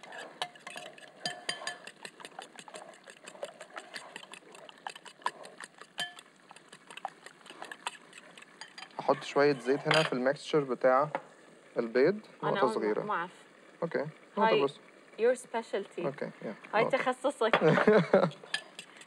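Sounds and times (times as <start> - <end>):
fork clinking against glass bowl: 0.0 - 10.2, 18.5 - 19.0.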